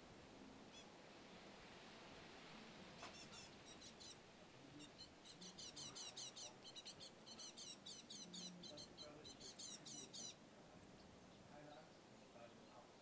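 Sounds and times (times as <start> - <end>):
faint songbird calling: 0.7 - 1.0, 3.0 - 12.9.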